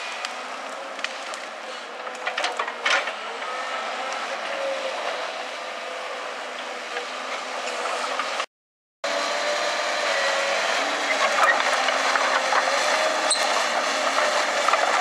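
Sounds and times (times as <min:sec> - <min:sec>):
excavator diesel engine running: 0:09.1 - 0:15.0.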